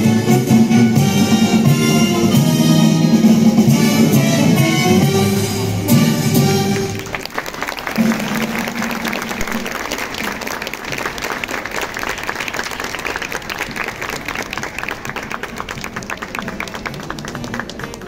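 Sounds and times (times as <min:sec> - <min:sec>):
folk dance music: 0:00.0 - 0:11.8
many hands clapping fast: 0:06.7 - 0:18.0.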